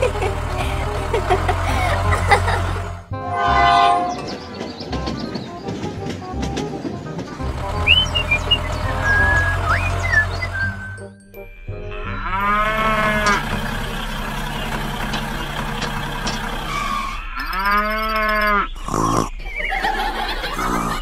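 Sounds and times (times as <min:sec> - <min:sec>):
cow mooing: 0:12.0 - 0:13.6.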